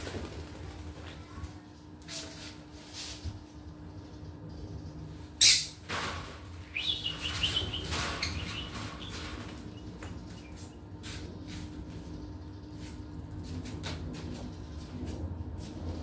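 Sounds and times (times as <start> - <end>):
parrots chirping: 5.4 - 5.8, 6.6 - 10.8.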